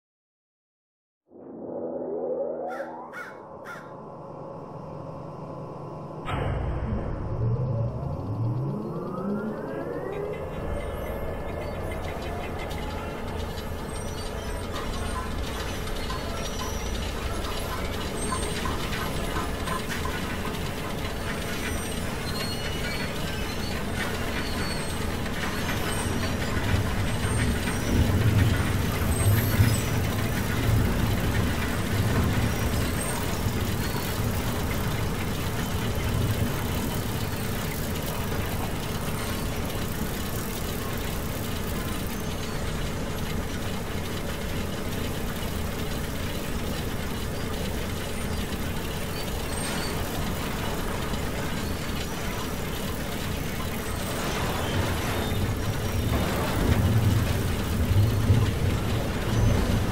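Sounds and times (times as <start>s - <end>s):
low rumble: 1.3s - 13.8s
machine running noise: 1.3s - 59.9s.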